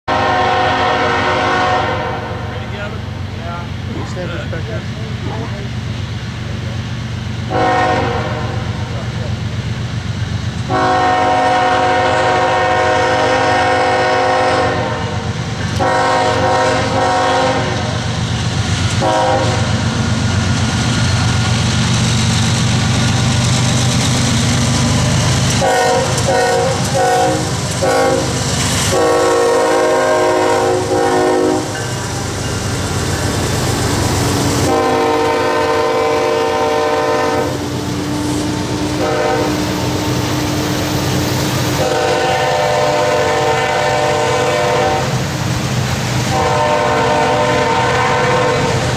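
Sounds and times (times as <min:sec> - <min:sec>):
freight train wheels rumbling: 0:00.0 - 0:48.9
locomotive air horn: 0:00.1 - 0:02.6, 0:07.5 - 0:08.7, 0:10.7 - 0:18.0, 0:19.0 - 0:19.8, 0:25.6 - 0:31.8, 0:34.6 - 0:40.2, 0:41.7 - 0:45.2, 0:46.2 - 0:48.9.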